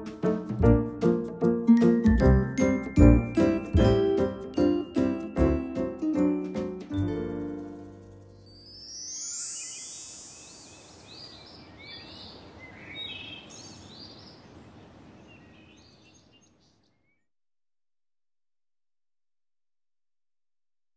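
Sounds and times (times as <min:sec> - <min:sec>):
open-air background hiss: 0:07.1 - 0:17.0
high shimmer: 0:07.6 - 0:11.2
small birds chirping: 0:08.4 - 0:17.3.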